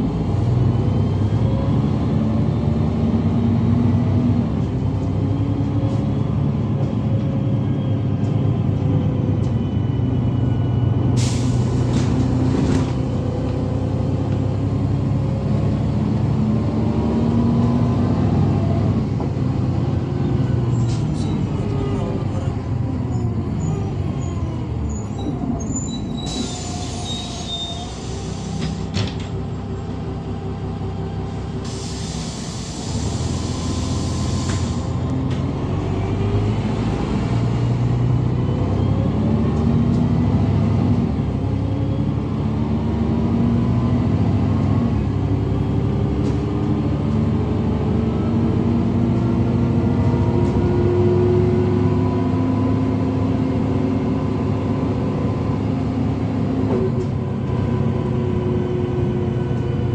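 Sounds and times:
bus engine accelerating: 0.0s - 59.9s
air hisses: 31.6s - 34.9s.

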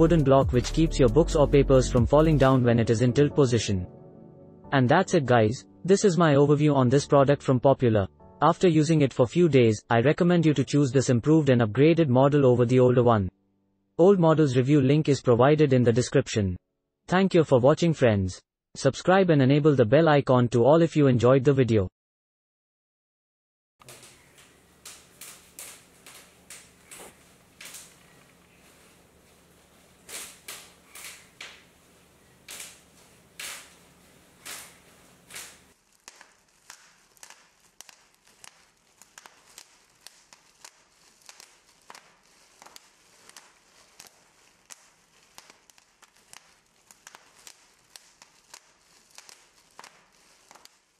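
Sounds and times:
sharp irregular clicks: 35.3s - 50.7s.

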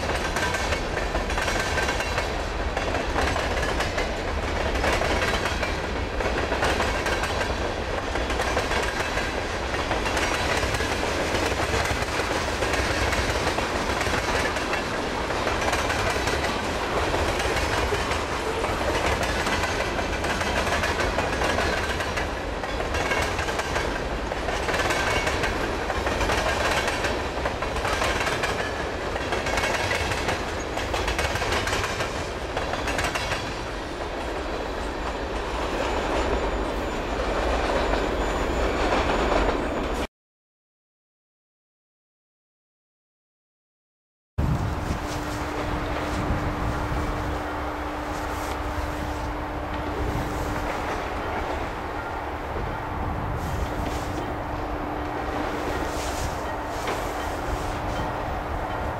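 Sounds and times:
wheels clacking over rail joints: 0.0s - 36.5s, 53.6s - 58.9s
train wheels rumbling and rattling: 0.0s - 40.1s, 44.4s - 58.9s.

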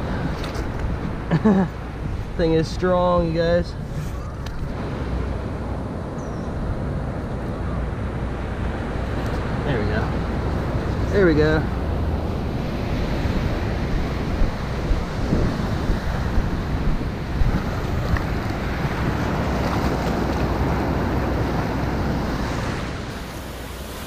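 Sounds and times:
wind rumbling on microphone: 0.0s - 24.0s
surf washing up the beach: 7.8s - 24.0s.

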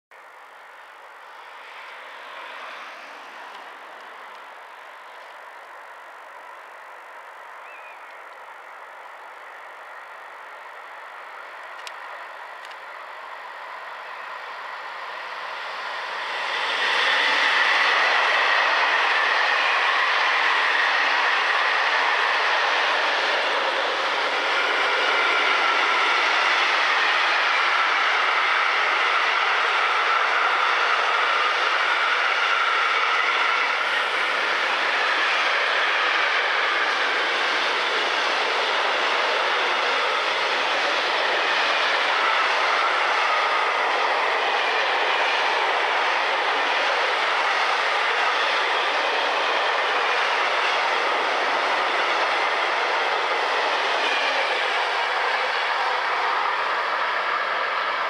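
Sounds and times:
freight train wheels on rails: 0.1s - 58.0s.

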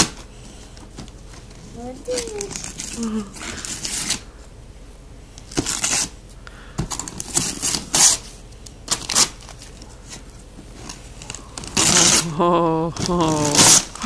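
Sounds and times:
wrapping paper tearing: 2.0s - 4.3s, 5.5s - 6.2s, 7.0s - 8.3s, 8.9s - 9.7s, 10.8s - 14.0s.

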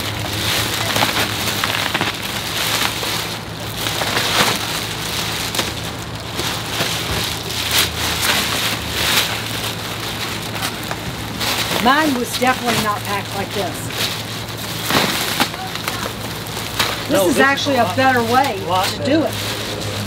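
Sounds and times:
plastic crinkling and rustling: 0.0s - 20.0s.

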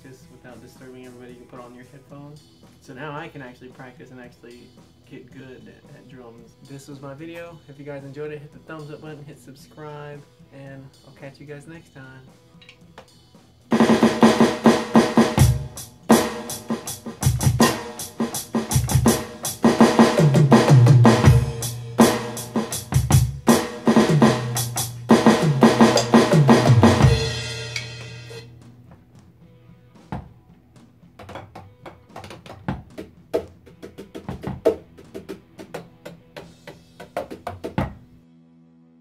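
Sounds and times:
electronic drum kit groove: 12.8s - 28.6s, 31.1s - 38.0s
cymbal ringing out: 23.6s - 28.5s
sticks tapping mesh pads: 31.2s - 37.8s.

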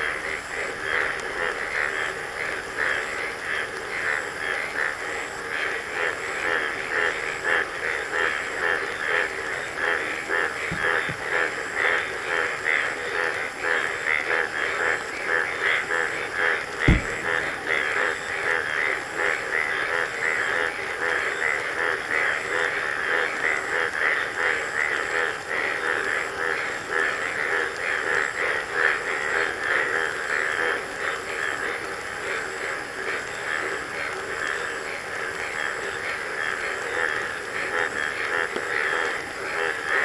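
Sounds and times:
frogs calling: 0.0s - 40.0s
sharp low thump: 16.8s - 18.0s.

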